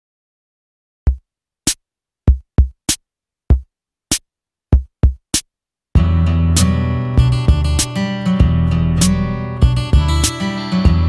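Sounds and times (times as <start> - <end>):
deep kick drum hits: 6.0 - 6.2, 7.2 - 7.8.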